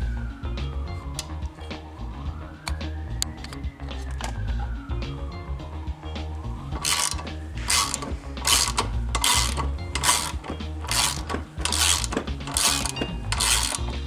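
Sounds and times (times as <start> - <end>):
socket ratchet clicking: 6.8 - 14.0.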